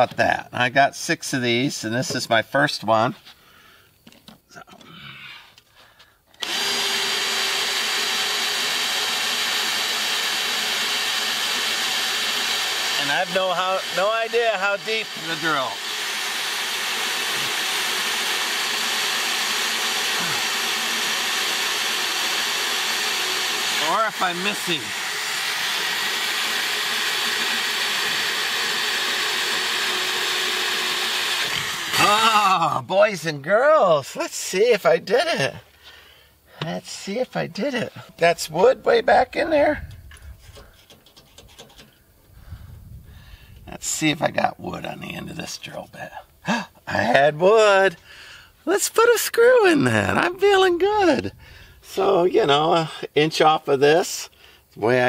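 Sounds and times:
cordless drill drilling into steel: 0:06.4 - 0:32.5.

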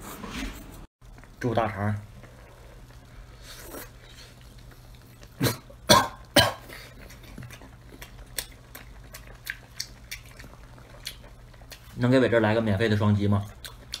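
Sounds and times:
man coughing: 0:05.4 - 0:06.9
mouth clicks while chewing: 0:13.6 - 0:14.0.

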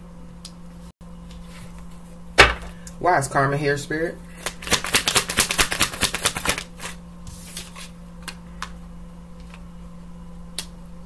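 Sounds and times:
cards being shuffled: 0:04.4 - 0:08.4.

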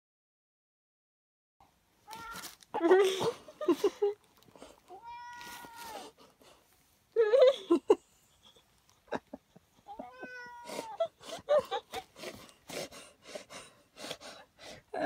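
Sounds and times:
cat meowing: 0:02.1 - 0:02.6, 0:04.9 - 0:06.1, 0:09.9 - 0:11.0.

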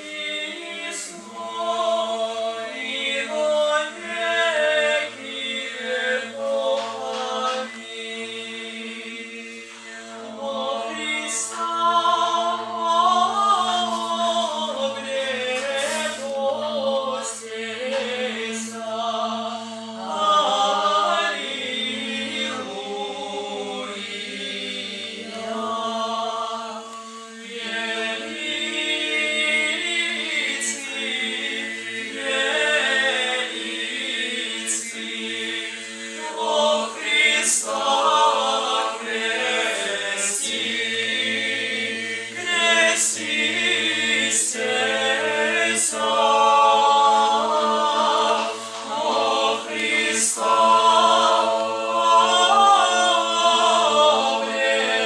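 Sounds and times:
choir singing a cappella: 0:00.0 - 0:55.0.

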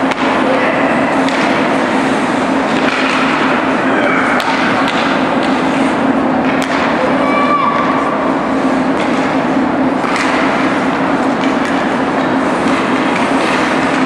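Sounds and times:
steady low hum: 0:00.0 - 0:14.0
sticks clacking on puck: 0:01.2 - 0:01.6, 0:02.7 - 0:03.5, 0:04.4 - 0:05.6, 0:06.4 - 0:06.9, 0:10.0 - 0:10.6, 0:11.4 - 0:14.0
skates scraping ice: 0:12.6 - 0:14.0.

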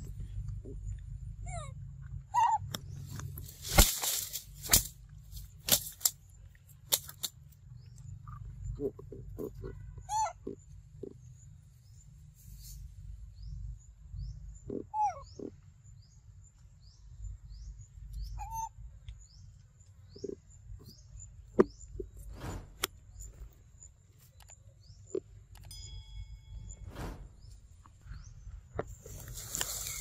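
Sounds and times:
faint steady high tone: 0:25.5 - 0:26.9.

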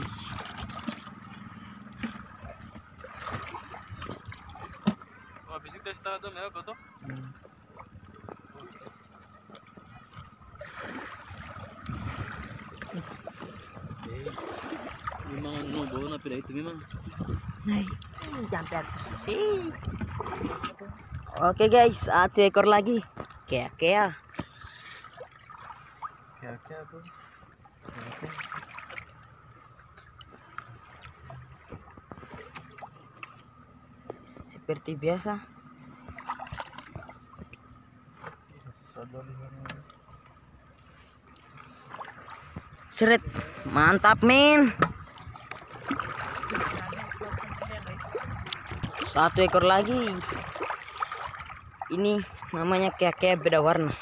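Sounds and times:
water splashing and sloshing: 0:00.0 - 0:54.0
splash in water: 0:02.0 - 0:05.4, 0:10.6 - 0:13.3, 0:14.2 - 0:16.0, 0:27.9 - 0:29.1, 0:36.1 - 0:37.2, 0:44.7 - 0:52.5.

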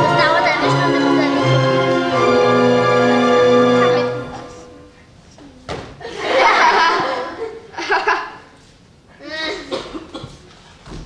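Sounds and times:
audience laughing: 0:06.0 - 0:08.4.

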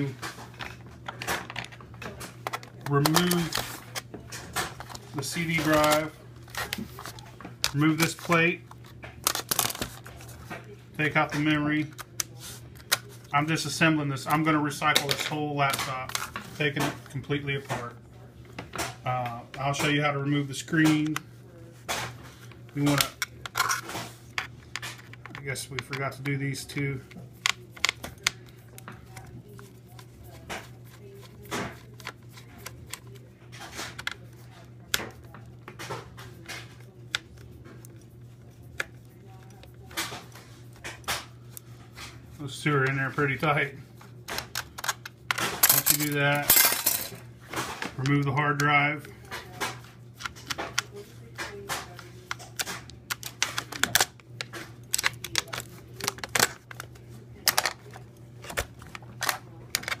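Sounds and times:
low steady hum: 0:00.0 - 1:00.0.

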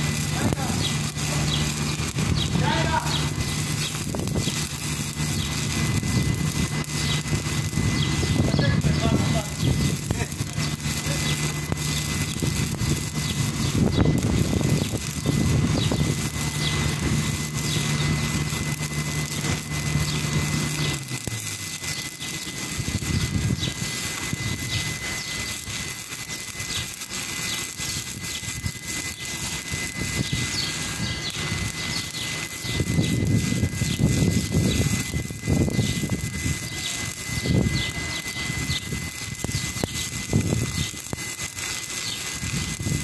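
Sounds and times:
low machine hum: 0:00.0 - 0:43.0
welding arc crackling and hissing: 0:00.0 - 0:43.0.

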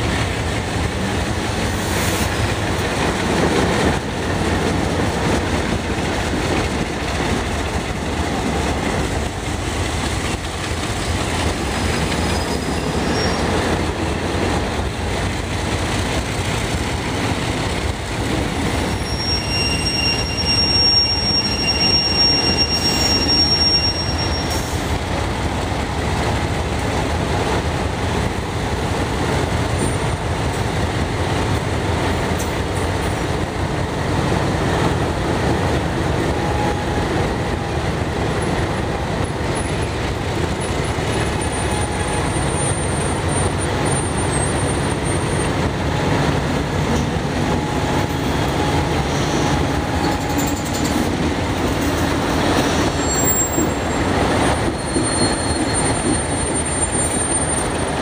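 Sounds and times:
locomotive engines rumbling: 0:00.0 - 0:58.0
faint high wheel squeal: 0:10.8 - 0:13.7, 0:18.8 - 0:25.0, 0:47.6 - 0:51.1, 0:52.6 - 0:58.0.

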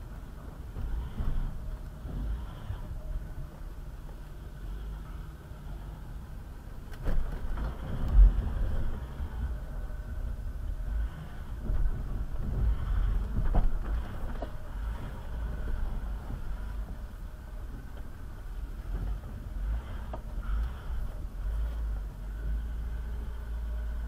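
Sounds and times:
low engine rumble: 0:00.0 - 0:24.0
knocks and thumps from suspension: 0:00.7 - 0:03.0, 0:07.0 - 0:09.2, 0:11.5 - 0:18.1.

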